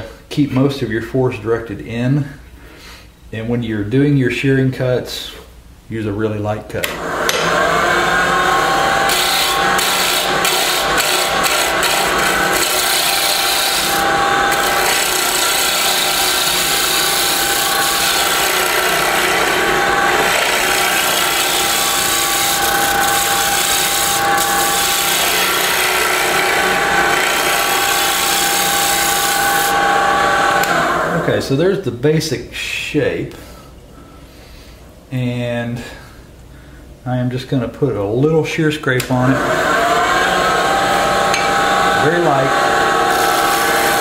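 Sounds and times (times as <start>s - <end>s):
lathe whine: 6.9s - 31.3s, 39.2s - 44.0s
gouge scraping spinning wood: 7.4s - 30.8s, 41.3s - 44.0s.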